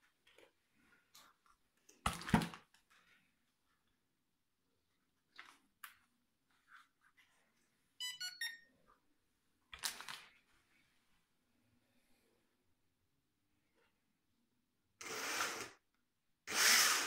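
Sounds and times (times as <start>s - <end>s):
electronic beeps: 8.0s - 8.7s.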